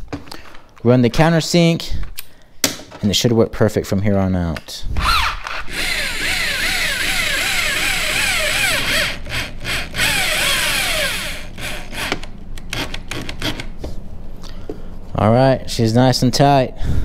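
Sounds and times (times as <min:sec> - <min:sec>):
power drill cutting aluminum: 0:05.0 - 0:12.3.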